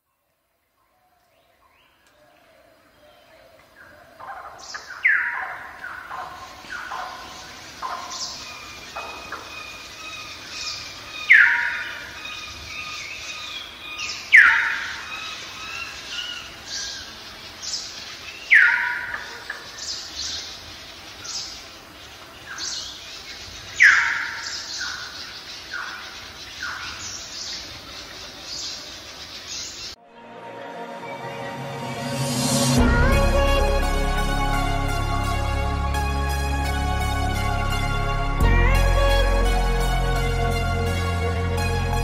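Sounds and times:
birds chirping: 0:01.5 - 0:30.0.

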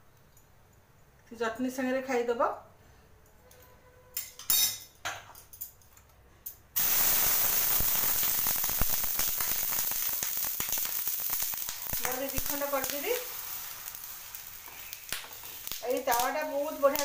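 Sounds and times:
water sizzling on hot griddle: 0:06.8 - 0:17.0.

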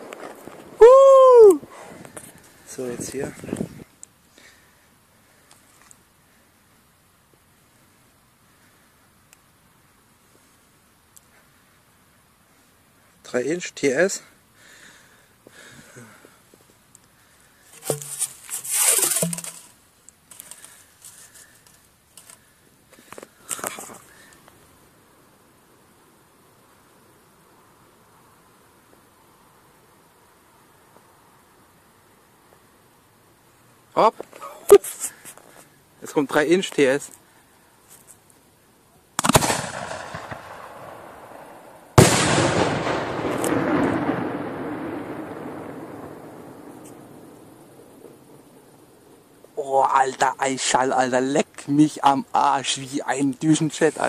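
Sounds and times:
firework shell scraping into tube: 0:17.7 - 0:21.6, 0:22.2 - 0:22.4
shell bursting with loud bang: 0:39.2 - 0:48.2.

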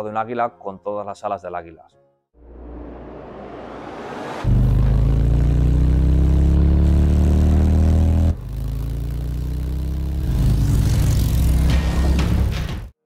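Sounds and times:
motorcycle engine accelerating: 0:02.8 - 0:12.9.

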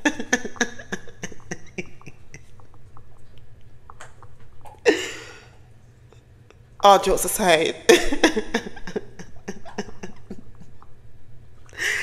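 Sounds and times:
woman laughing: 0:00.0 - 0:02.6, 0:07.9 - 0:10.8.

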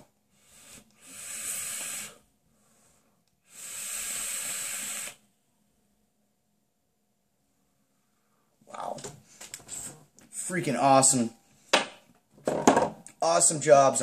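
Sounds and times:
hissing exhale: 0:00.4 - 0:05.3
vape draw hissing: 0:00.7 - 0:02.2, 0:03.4 - 0:05.3.

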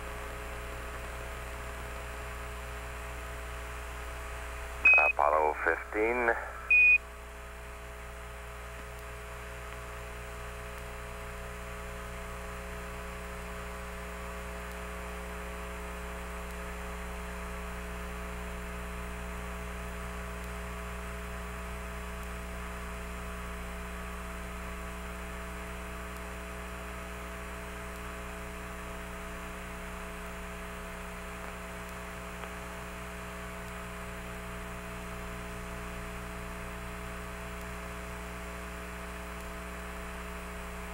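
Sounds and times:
electrical hum: 0:00.0 - 0:40.9
faint steady radio tones: 0:04.8 - 0:07.0
static hiss: 0:04.9 - 0:07.0.

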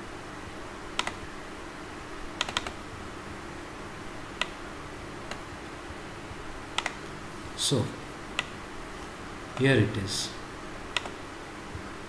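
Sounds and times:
low steady hum: 0:00.0 - 0:12.0
computer mouse and key clicks: 0:01.0 - 0:01.2, 0:02.4 - 0:02.8, 0:04.4 - 0:04.6, 0:06.7 - 0:07.0, 0:10.9 - 0:11.2.

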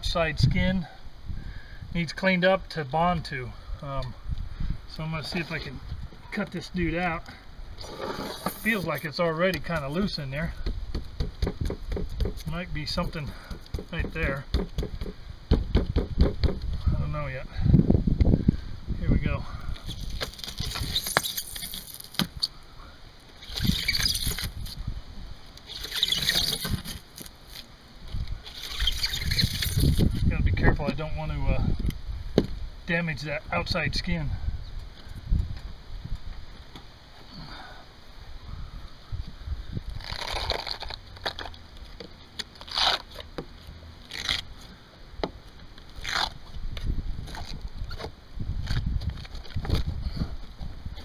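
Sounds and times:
knife rasping through styrofoam: 0:07.8 - 0:09.1, 0:19.8 - 0:22.2, 0:23.4 - 0:24.7, 0:25.7 - 0:27.0, 0:28.5 - 0:30.1
scraper blade scraping wood: 0:07.8 - 0:09.1, 0:25.7 - 0:27.6.

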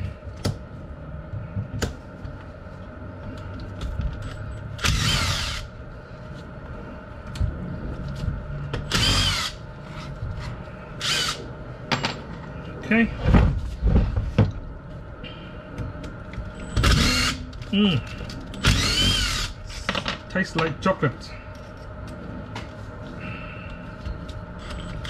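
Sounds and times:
cordless drill whirring: 0:04.8 - 0:05.7, 0:08.9 - 0:09.6, 0:11.0 - 0:11.4, 0:16.8 - 0:17.4, 0:18.6 - 0:19.6.

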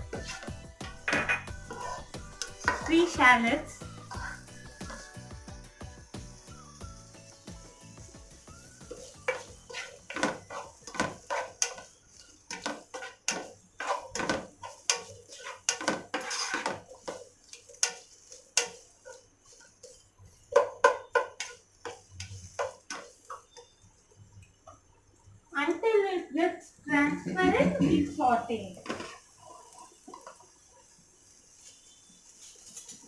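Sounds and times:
spoon scraping a pot: 0:00.0 - 0:05.1, 0:08.9 - 0:23.8.

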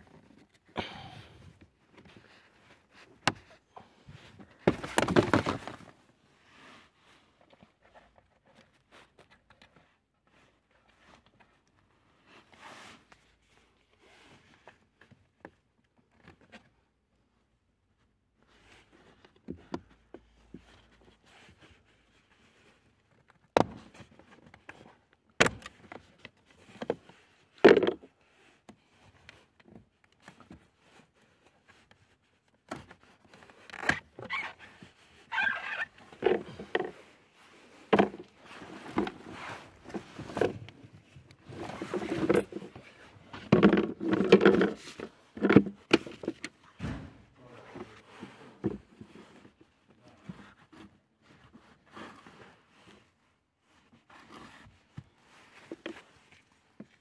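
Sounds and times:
air filter rustling and scraping: 0:01.9 - 0:09.2, 0:30.5 - 0:50.8
plastic cover clicks and knocks: 0:04.6 - 0:05.9.

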